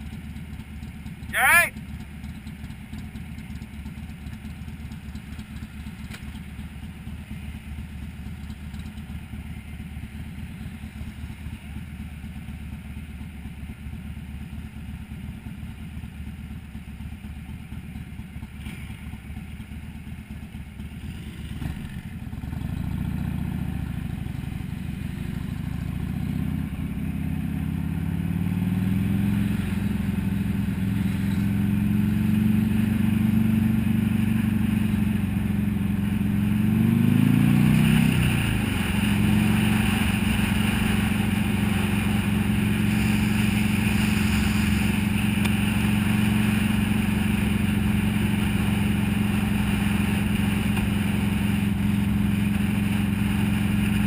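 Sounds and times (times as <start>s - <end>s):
motorcycles idling: 0.0s - 54.0s
motorcycle accelerating through gears: 17.2s - 54.0s.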